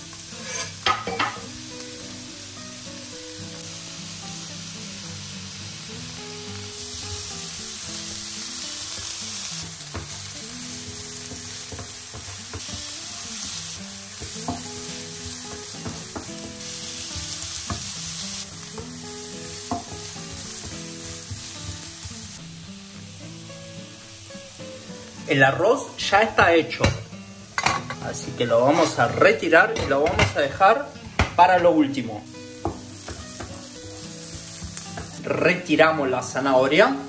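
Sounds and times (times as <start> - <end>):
carrots sizzling in hot oil: 0.0 - 31.0, 31.9 - 37.0
wooden spatula scraping pan: 0.4 - 0.8.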